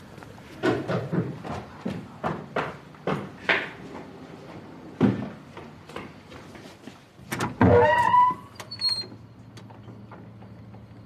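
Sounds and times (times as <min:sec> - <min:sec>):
footsteps: 0:00.0 - 0:07.3
door creaking open: 0:07.3 - 0:10.5.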